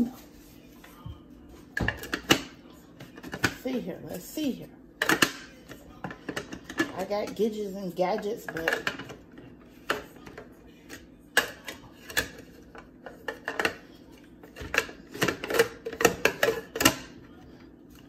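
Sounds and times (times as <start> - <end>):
kitchen utensils clattering: 6.0 - 10.4, 11.4 - 13.8, 14.4 - 17.1.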